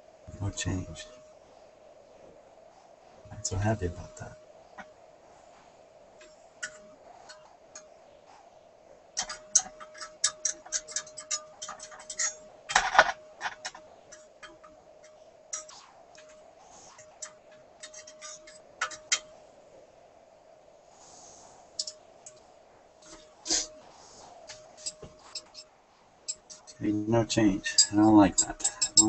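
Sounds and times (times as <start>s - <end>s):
radio test tone: 3.3s - 4.3s
radio clicks and crackles: 9.1s - 16.4s.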